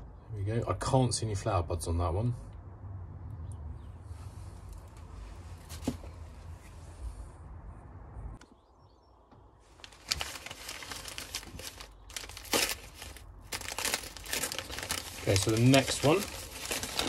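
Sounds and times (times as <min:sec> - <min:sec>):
newspaper crinkling and rustling: 0:09.7 - 0:17.0
handling noise: 0:09.8 - 0:17.0.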